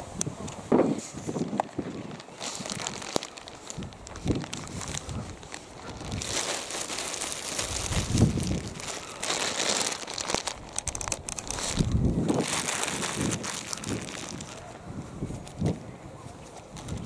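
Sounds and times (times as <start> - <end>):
wind buffeting microphone: 0.0 - 17.0
camera handling rustle: 10.0 - 14.6.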